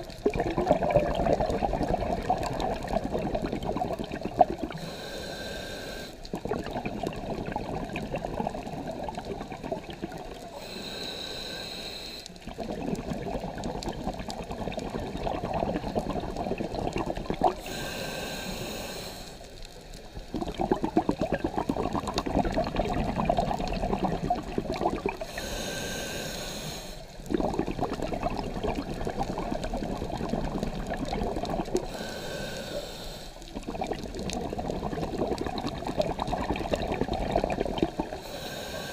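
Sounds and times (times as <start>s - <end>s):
bubbling exhale underwater: 0.0s - 4.9s, 6.2s - 11.0s, 12.4s - 18.8s, 20.2s - 26.2s, 27.2s - 32.6s, 33.4s - 38.9s
hissing regulator inhale: 4.7s - 6.3s, 10.5s - 12.4s, 17.6s - 19.6s, 25.2s - 27.2s, 31.8s - 33.6s, 38.1s - 38.9s.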